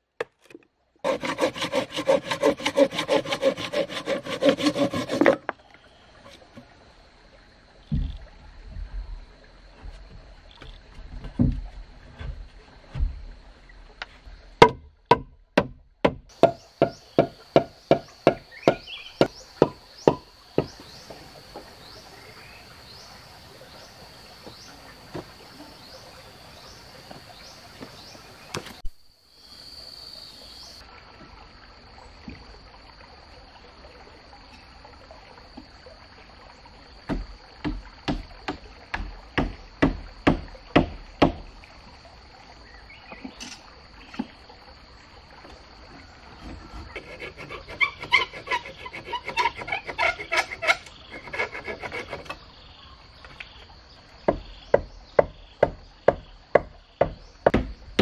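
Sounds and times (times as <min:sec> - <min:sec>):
fast scraping on wood: 0:01.0 - 0:05.5, 0:16.4 - 0:20.8, 0:46.5 - 0:52.4
hand tool knocking on wood: 0:14.6 - 0:21.2, 0:37.1 - 0:41.4, 0:54.3 - 0:58.0
high insect drone: 0:16.3 - 0:33.5.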